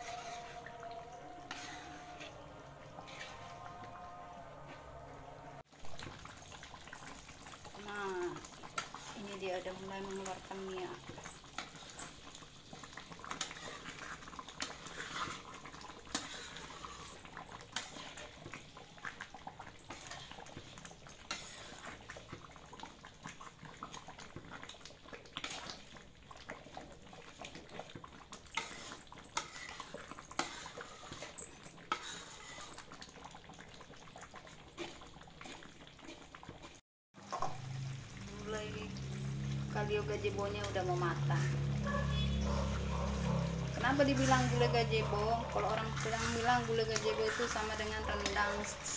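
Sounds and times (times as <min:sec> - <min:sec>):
metal spatula scraping a pan: 0:00.0 - 0:05.7, 0:07.8 - 0:22.4, 0:26.5 - 0:33.2, 0:39.6 - 0:48.9
curry bubbling in a wok: 0:00.0 - 0:48.9.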